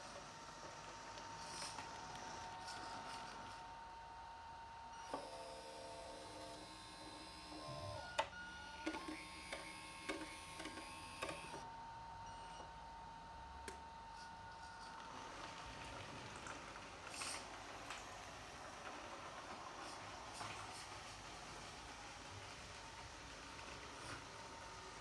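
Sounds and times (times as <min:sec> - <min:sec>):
small electric motor whirring: 0:08.9 - 0:11.6.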